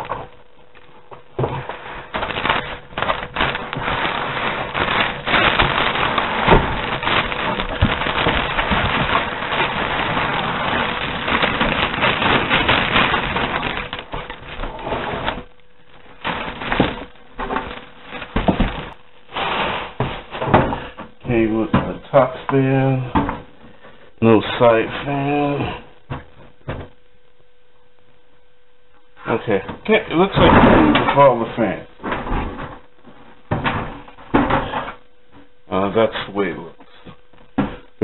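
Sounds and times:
plastic wrapping crinkling: 0:00.0 - 0:20.4
handling knocks: 0:16.2 - 0:19.0.

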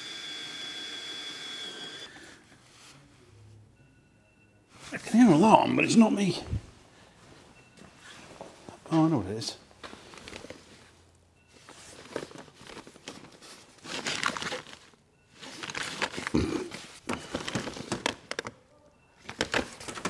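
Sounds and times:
rustling and crinkling: 0:09.8 - 0:18.6
items clicking and knocking: 0:11.7 - 0:18.6, 0:19.2 - 0:20.0.

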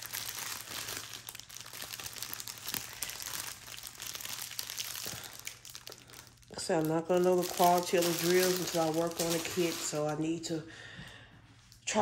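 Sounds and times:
plastic bags crinkling: 0:00.0 - 0:10.6.

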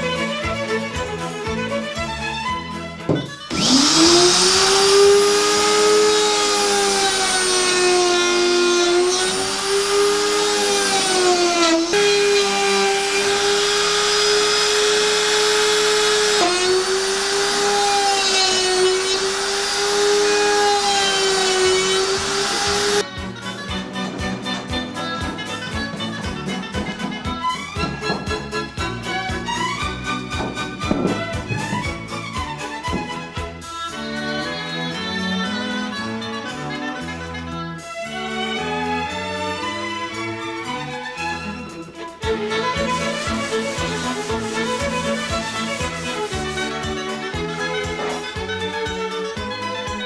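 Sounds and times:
background music: 0:00.0 - 0:50.0
router motor whine cutting wood: 0:03.3 - 0:23.1, 0:42.2 - 0:49.0.

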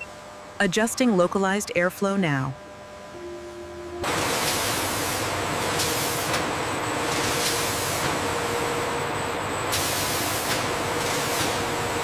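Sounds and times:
factory machinery hiss: 0:04.1 - 0:08.7, 0:09.6 - 0:12.0.

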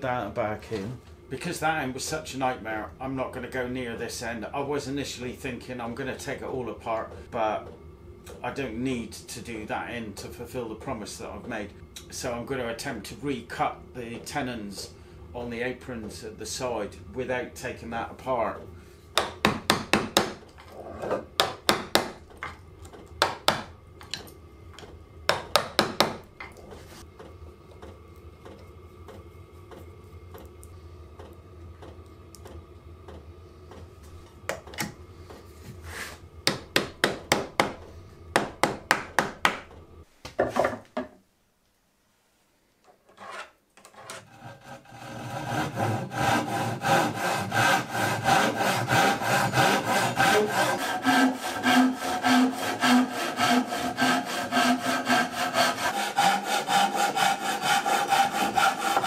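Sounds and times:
hand saw cutting wood: 0:43.1 - 0:59.0.

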